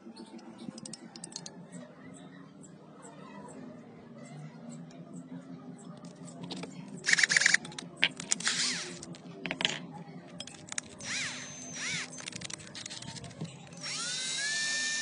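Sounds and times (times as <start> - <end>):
drill chuck clicks and rattles: 6.5 - 9.2, 10.4 - 14.7.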